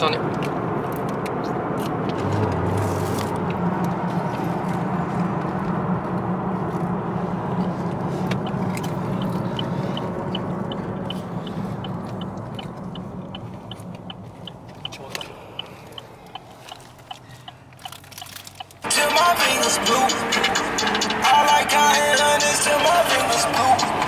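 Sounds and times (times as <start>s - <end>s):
car engine drone: 0.0s - 24.0s
road noise: 0.0s - 24.0s
regular ticking: 7.6s - 24.0s.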